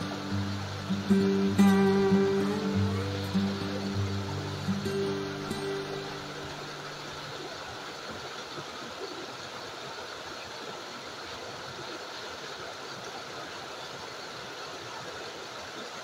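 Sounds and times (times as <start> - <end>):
creek water rushing over rocks: 0.0 - 16.0.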